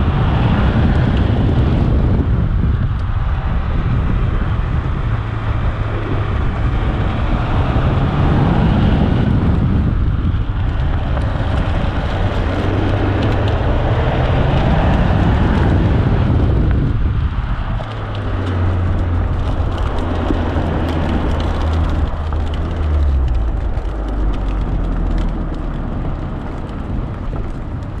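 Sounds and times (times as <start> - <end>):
car engine revving: 0.0 - 28.0
tyre noise: 0.0 - 28.0
wind noise: 0.0 - 28.0.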